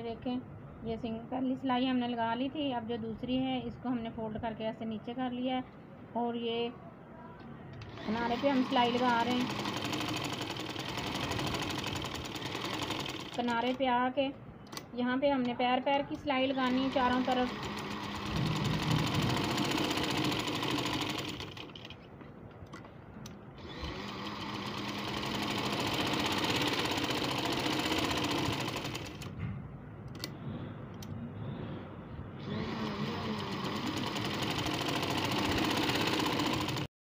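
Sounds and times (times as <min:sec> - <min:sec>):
sewing machine stitching: 0:07.8 - 0:13.8, 0:16.5 - 0:22.0, 0:23.6 - 0:29.3, 0:32.4 - 0:36.9.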